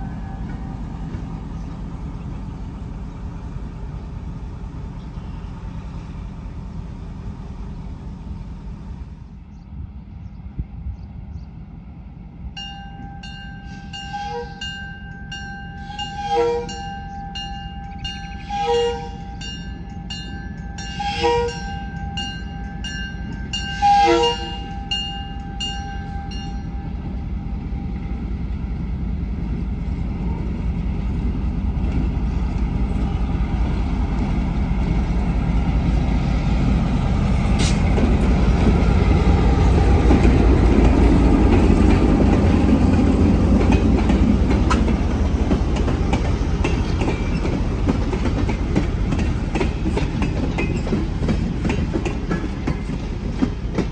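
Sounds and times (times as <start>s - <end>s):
diesel locomotive engine rumbling: 0.0s - 53.9s
horn toots: 23.7s - 24.8s.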